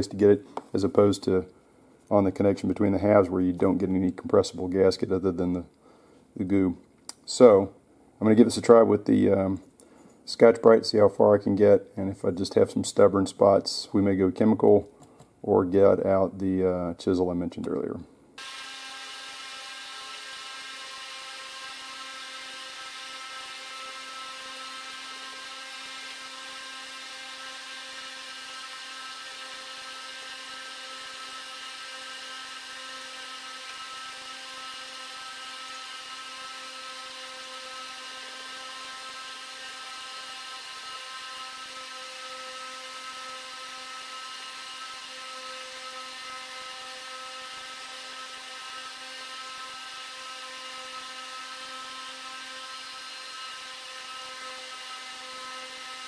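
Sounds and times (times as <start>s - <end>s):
small motor whirring hum: 18.4s - 56.0s.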